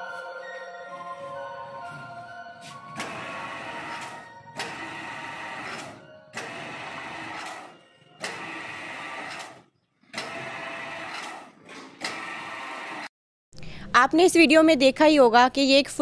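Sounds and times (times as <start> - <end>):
winch motor whining: 1.9 - 13.1.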